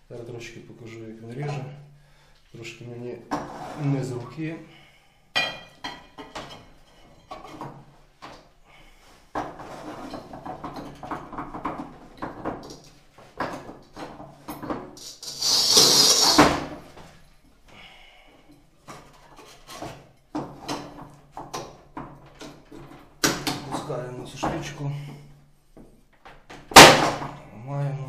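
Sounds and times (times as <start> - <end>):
scoring wheel hissing across tile: 15.0 - 16.6.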